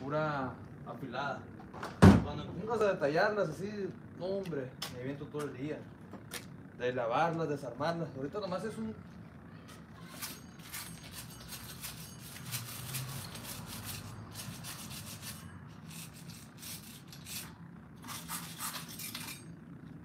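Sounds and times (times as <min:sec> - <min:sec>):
stiff brush scrubbing: 0:10.7 - 0:19.2.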